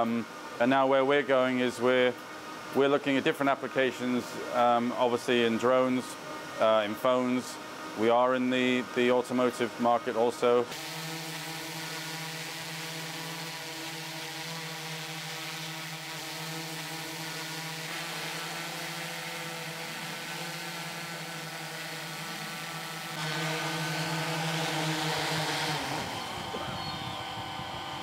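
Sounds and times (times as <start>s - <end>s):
drone rotors humming: 10.5s - 28.0s.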